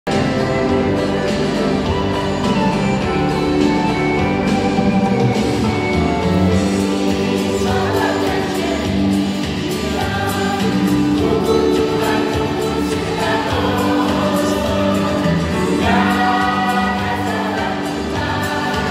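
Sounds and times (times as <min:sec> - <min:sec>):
choir singing gospel song: 0:05.7 - 0:18.9.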